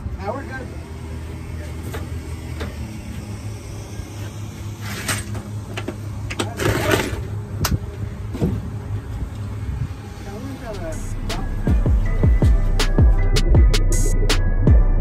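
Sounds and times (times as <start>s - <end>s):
steady low rumble: 7.2s - 15.0s.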